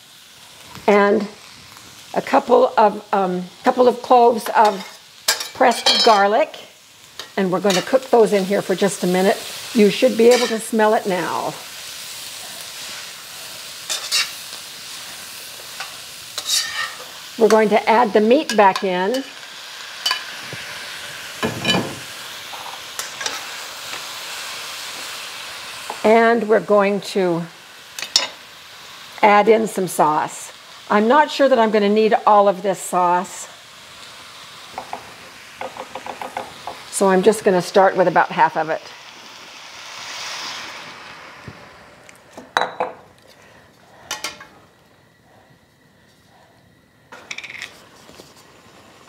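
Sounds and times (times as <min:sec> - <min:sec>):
meat sizzling in a wok: 0:00.0 - 0:45.2, 0:46.8 - 0:49.0
metal utensils scraping a pan: 0:04.4 - 0:06.3, 0:07.2 - 0:08.1, 0:10.2 - 0:10.7, 0:13.9 - 0:14.4, 0:15.8 - 0:17.6, 0:20.0 - 0:20.4, 0:22.6 - 0:23.5
glass bowl clinking: 0:42.6 - 0:43.0.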